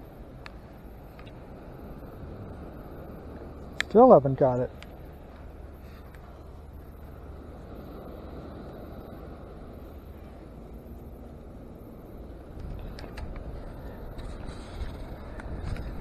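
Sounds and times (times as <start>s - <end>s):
wind: 0.0s - 16.0s
sand scoop crunching clicks: 3.3s - 6.6s, 12.4s - 16.0s.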